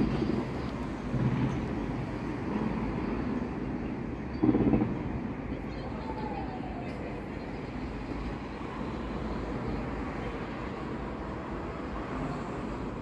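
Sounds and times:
distant fireworks rumble: 0:00.0 - 0:08.4.

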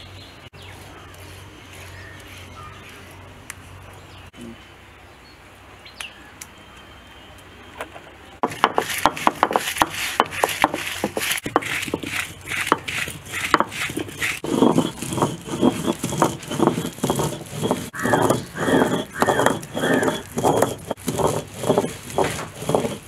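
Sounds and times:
chillies crackling and crunching: 0:00.6 - 0:04.3, 0:08.8 - 0:23.0
stone rolling on stone: 0:08.4 - 0:23.0.

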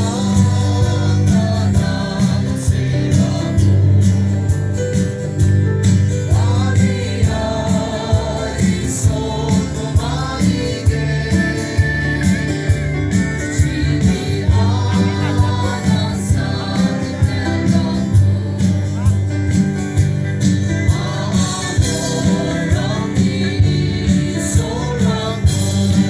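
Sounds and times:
electric guitars: 0:00.0 - 0:26.0
heavy bass: 0:00.0 - 0:26.0
steady drum beat: 0:00.0 - 0:26.0
person singing: 0:13.6 - 0:19.2.

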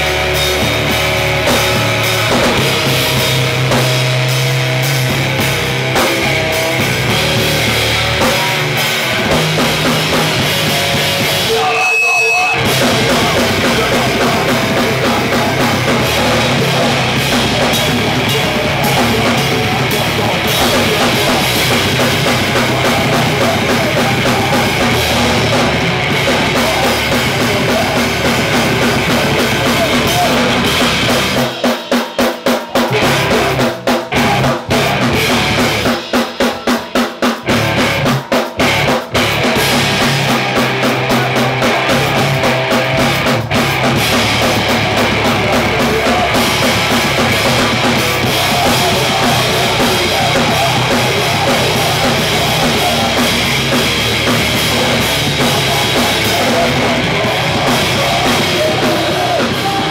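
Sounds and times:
hardcore punk band playing: 0:00.0 - 0:59.9
screamed vocals: 0:11.0 - 0:32.0, 0:44.2 - 0:59.9
high ring: 0:11.6 - 0:12.6.

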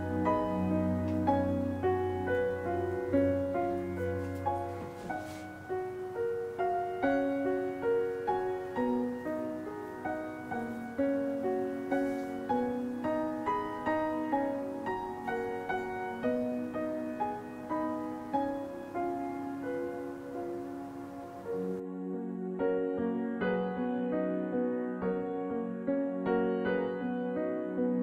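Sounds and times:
gentle piano music: 0:00.0 - 0:28.0.

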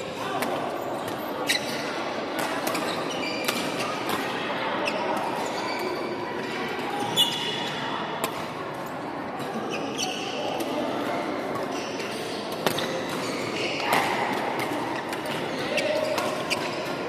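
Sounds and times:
murmur of voices echoing: 0:00.0 - 0:17.0.

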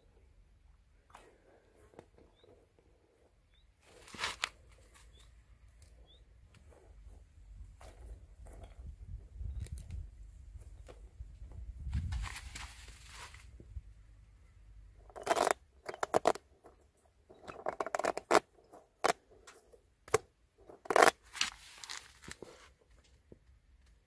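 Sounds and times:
rubber toys scraping on pavement: 0:03.8 - 0:05.3, 0:11.9 - 0:13.6, 0:15.0 - 0:19.4, 0:20.6 - 0:22.7.

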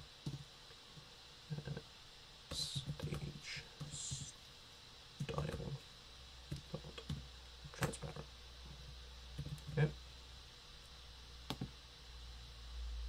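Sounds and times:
laptop keyboard typing: 0:09.4 - 0:09.8.

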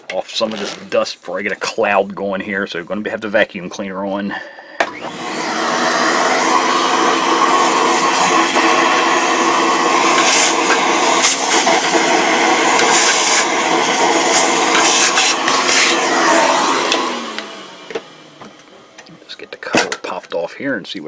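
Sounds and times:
vacuum cleaner motor whine: 0:04.8 - 0:19.7.

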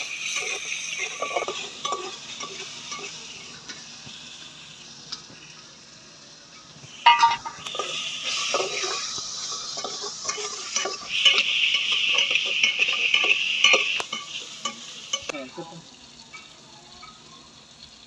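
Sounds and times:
spoon scraping in metal pot: 0:00.0 - 0:03.2, 0:07.1 - 0:15.3
food sizzling: 0:00.0 - 0:18.0.

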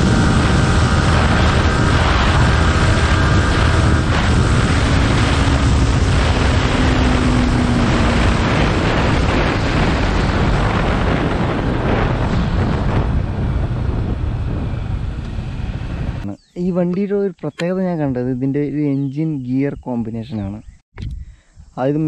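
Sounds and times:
motorcycle engine: 0:00.0 - 0:16.2
wind rushing over microphone: 0:00.0 - 0:16.4, 0:20.4 - 0:22.0.

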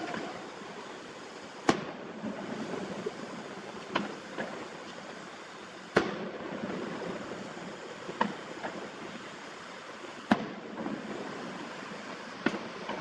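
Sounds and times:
distant firework booms: 0:05.9 - 0:06.7.

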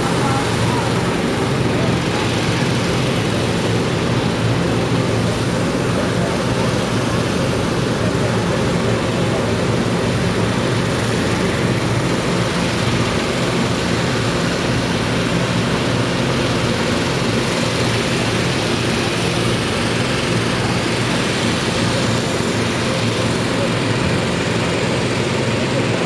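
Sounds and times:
engine drone: 0:00.0 - 0:26.0.

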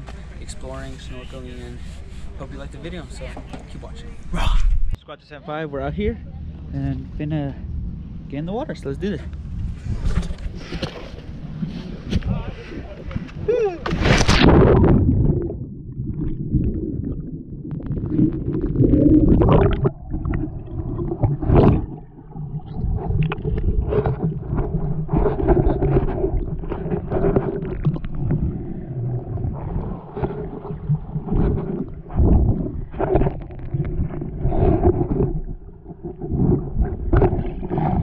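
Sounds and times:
muffled underwater rumble: 0:06.3 - 0:38.0
bubbles gurgling: 0:12.8 - 0:38.0.

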